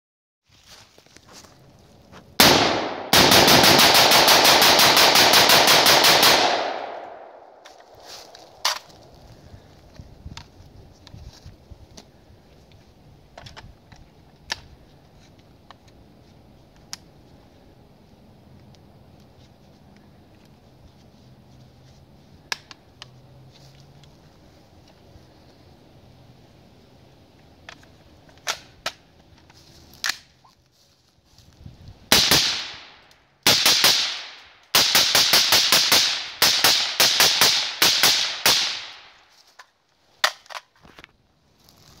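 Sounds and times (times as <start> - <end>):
suppressed rifle shots: 2.4 - 7.4.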